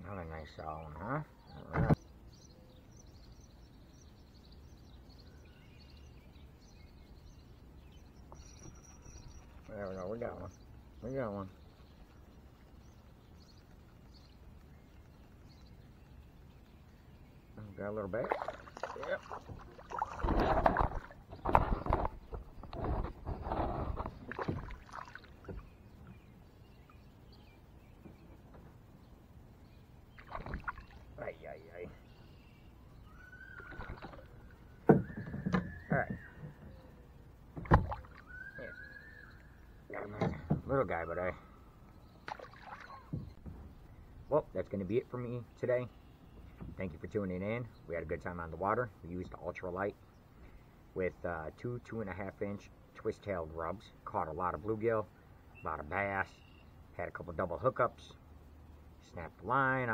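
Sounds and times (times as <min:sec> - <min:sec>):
faint water sounds: 0:00.0 - 0:59.9
bird chirps: 0:00.4 - 0:58.2
fish splashing water: 0:18.2 - 0:22.4, 0:24.0 - 0:25.7, 0:30.2 - 0:31.1, 0:42.2 - 0:43.1.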